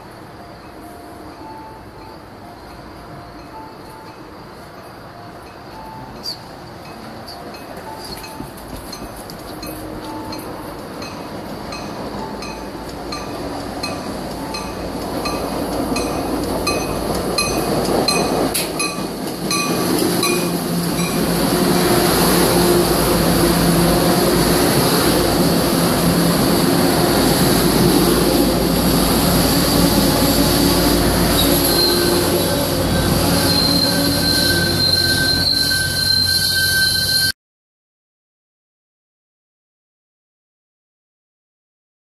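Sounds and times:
train coaches rumbling: 0:00.0 - 0:37.3
wheel and brake squeal: 0:29.6 - 0:37.4.

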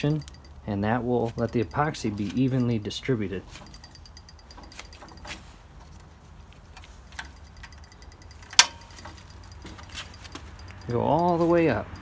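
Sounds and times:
rubber grip ticks and rubbing: 0:00.0 - 0:00.6, 0:01.2 - 0:12.0
sharp click: 0:07.2 - 0:11.3.

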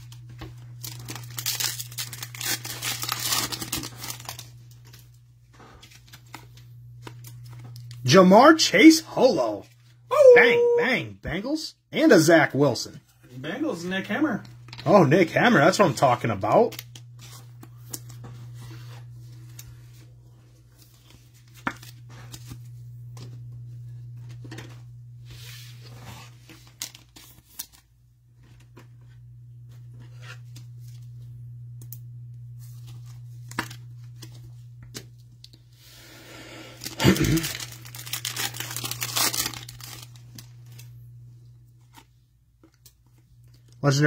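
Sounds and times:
crinkling rustle: 0:36.8 - 0:40.9.

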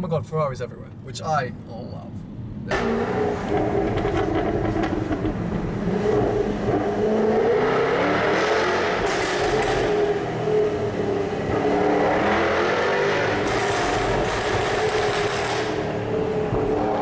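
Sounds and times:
car engine and exhaust: 0:00.0 - 0:17.0.

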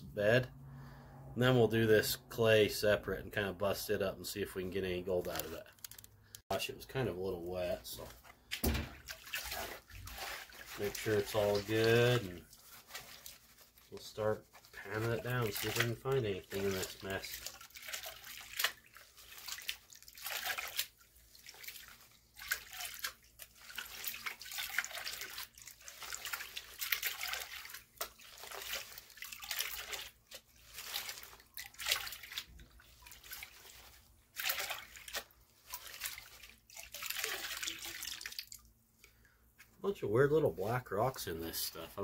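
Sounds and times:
water sloshing in a pan: 0:06.6 - 0:39.8.

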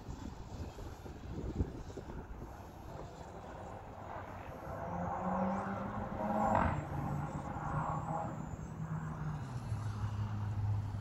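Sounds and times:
wind buffeting microphone: 0:00.0 - 0:07.4.

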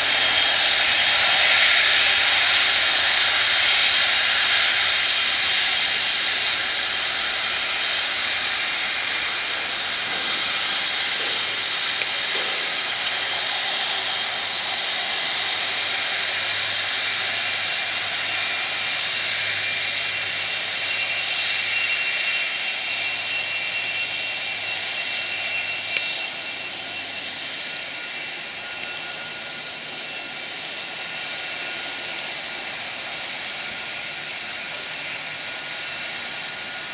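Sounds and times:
jet engine hiss: 0:00.0 - 0:36.9
jet engine whining tones: 0:00.0 - 0:36.9.

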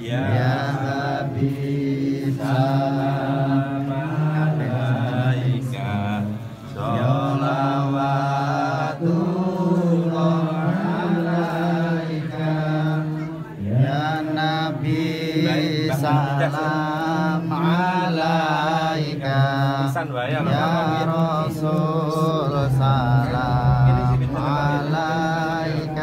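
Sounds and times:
melodic devotional chanting: 0:00.0 - 0:26.0
low held drone: 0:20.8 - 0:26.0.

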